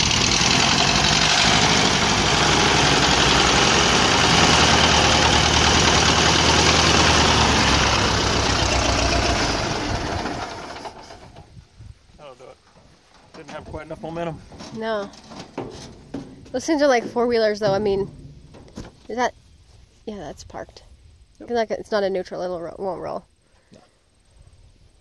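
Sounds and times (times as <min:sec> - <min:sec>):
car engine running under load: 0:00.0 - 0:11.5.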